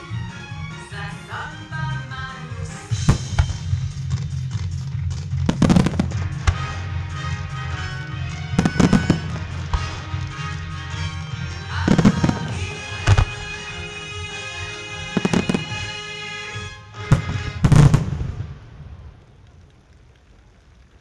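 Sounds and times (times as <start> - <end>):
orchestral music: 0.0 - 18.5
firework shells booming: 3.0 - 13.6, 17.0 - 19.1.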